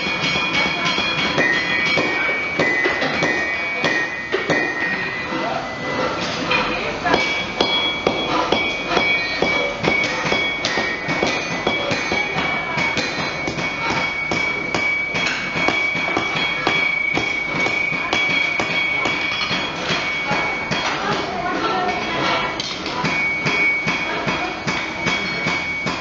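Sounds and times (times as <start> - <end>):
anvils ringing: 0.0 - 5.4, 6.5 - 26.0
hammers striking hot steel: 0.0 - 26.0.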